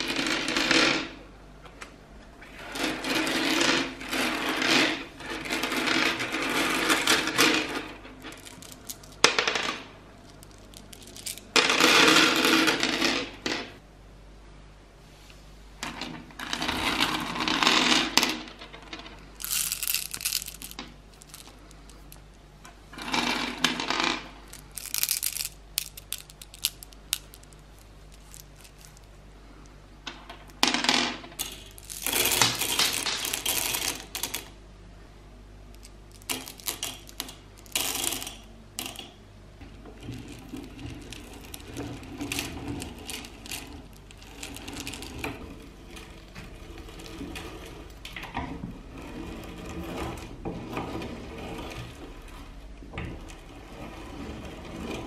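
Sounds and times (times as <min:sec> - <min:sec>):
grinder crunching candy: 0:10.3 - 0:11.8, 0:19.4 - 0:22.1, 0:24.5 - 0:27.5, 0:31.8 - 0:34.3
hard candies clattering into metal hopper: 0:19.4 - 0:21.5.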